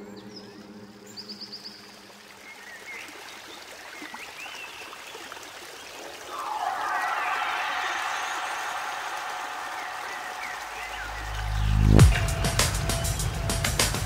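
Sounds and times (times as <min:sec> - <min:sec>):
faint chirps: 0:05.9 - 0:13.5.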